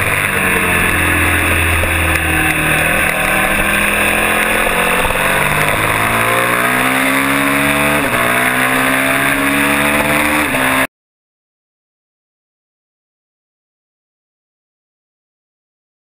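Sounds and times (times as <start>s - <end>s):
motorcycle engine accelerating: 0.0s - 10.9s.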